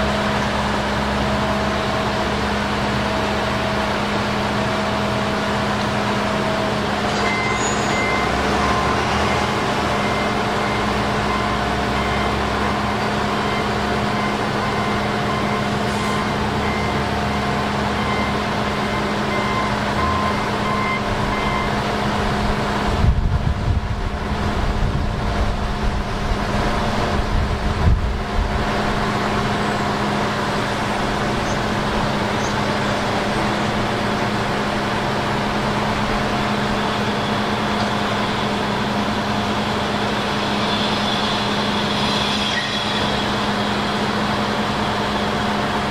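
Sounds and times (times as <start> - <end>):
diesel engines idling: 0.0 - 45.9
electronic warning beeper: 7.1 - 21.8.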